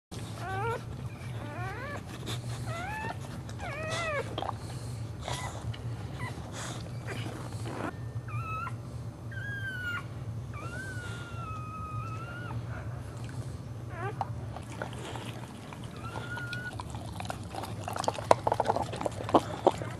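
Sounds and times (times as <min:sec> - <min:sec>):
steady low hum: 0:00.1 - 0:19.9
dog whining: 0:00.2 - 0:19.9.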